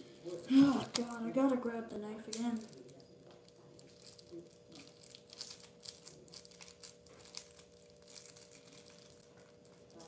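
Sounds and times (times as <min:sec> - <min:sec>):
plastic wrap crinkling: 0:00.0 - 0:10.0.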